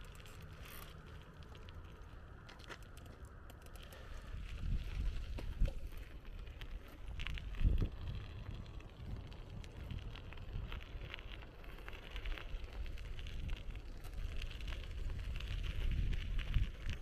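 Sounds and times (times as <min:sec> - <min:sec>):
bicycle tyre road noise: 0:00.0 - 0:17.0
wind buffeting microphone: 0:04.0 - 0:17.0.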